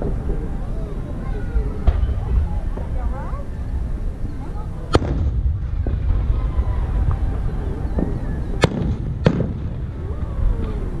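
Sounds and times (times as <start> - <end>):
steady low rumble: 0.0 - 11.0
faint fireworks pops: 1.8 - 3.0, 4.9 - 11.0
fireworks bangs: 1.8 - 3.0, 4.9 - 11.0.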